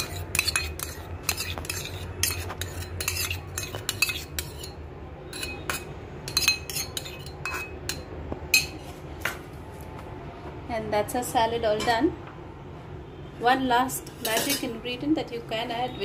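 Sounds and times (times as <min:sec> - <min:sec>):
spoon clinking on metal bowl: 0:00.0 - 0:08.8, 0:14.1 - 0:14.8.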